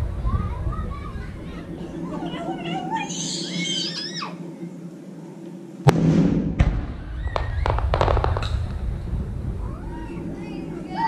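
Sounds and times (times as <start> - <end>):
smaller firework cracks: 5.8 - 9.0
firework bang with rumbling boom: 5.8 - 10.1.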